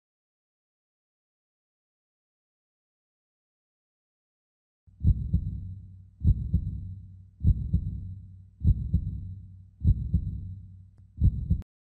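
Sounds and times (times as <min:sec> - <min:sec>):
heartbeat low double thump: 0:05.0 - 0:10.6, 0:11.2 - 0:11.6.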